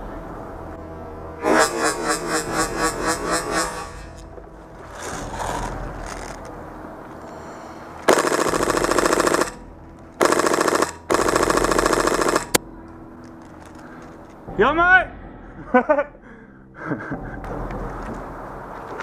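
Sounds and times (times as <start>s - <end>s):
airsoft rifle firing bursts: 8.1s - 9.6s, 10.2s - 12.6s.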